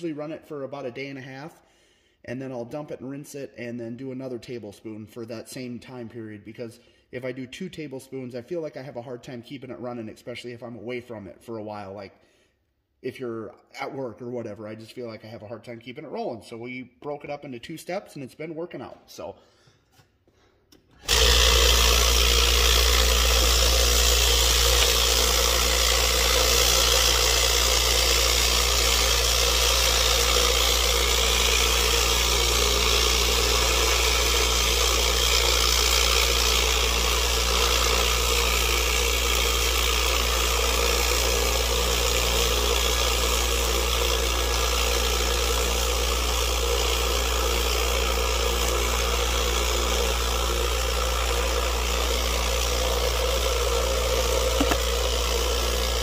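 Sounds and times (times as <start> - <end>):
rock tumbler humming: 21.0 - 46.6, 47.2 - 56.0.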